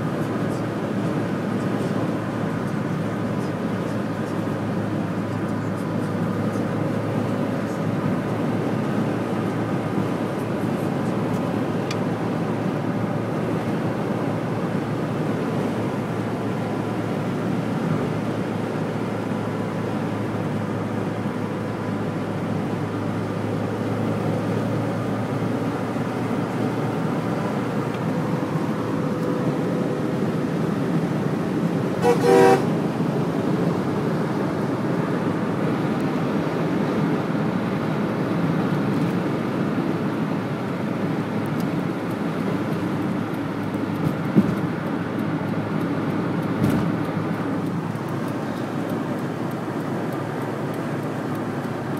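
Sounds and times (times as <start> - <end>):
motorway traffic on wet road: 0.0 - 51.9
vehicle horn toots: 32.0 - 32.8.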